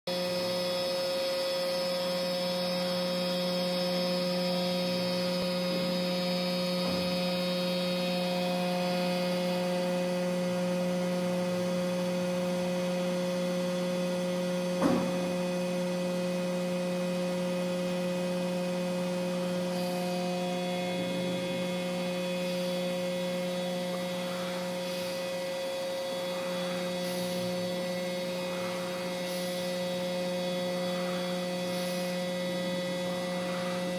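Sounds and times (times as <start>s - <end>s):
steady electrical hum: 0.1s - 33.9s
sharp knock: 14.8s - 15.3s.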